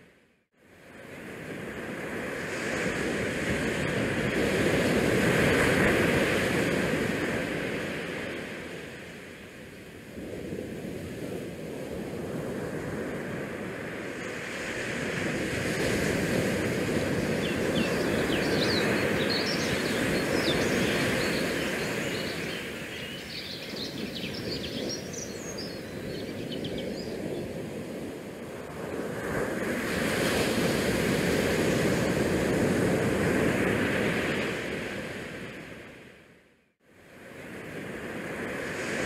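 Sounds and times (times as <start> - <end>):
rushing wind noise: 1.0 - 36.0.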